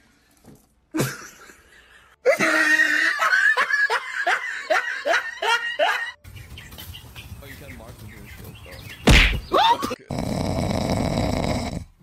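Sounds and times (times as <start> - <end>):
person laughing hard: 2.2 - 6.2.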